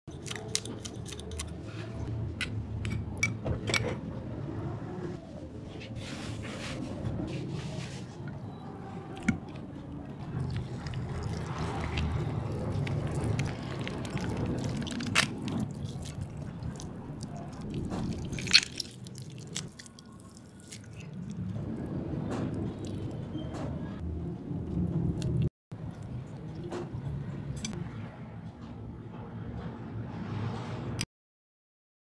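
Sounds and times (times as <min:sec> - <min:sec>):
meat tearing and squelching: 0:10.2 - 0:21.8.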